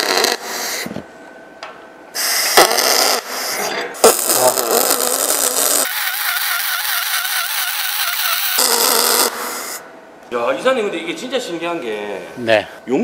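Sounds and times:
welding arc crackling hiss: 4.0s - 9.8s.

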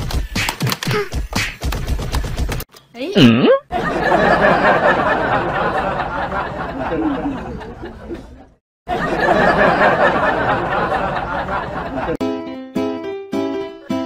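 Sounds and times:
crowd chattering and laughing: 3.7s - 12.2s.

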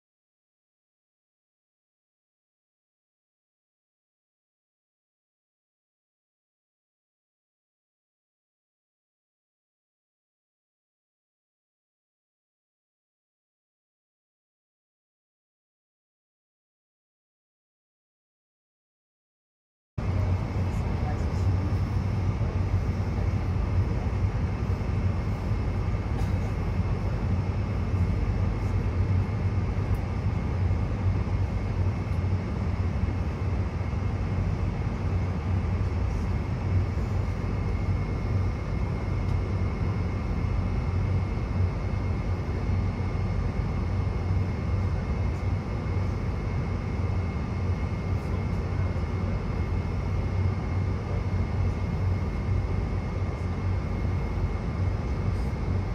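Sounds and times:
faint high whine: 20.0s - 55.9s
low aircraft cabin drone: 20.0s - 55.9s.

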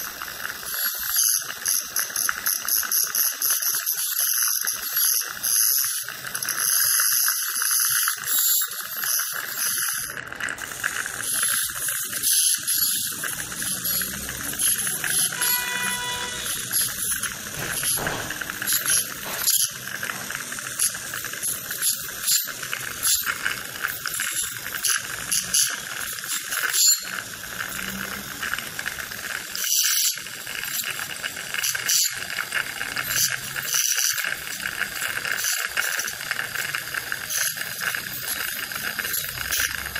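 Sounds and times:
dental handpiece high buzz: 0.0s - 39.9s
short pitched tone: 14.7s - 17.0s.

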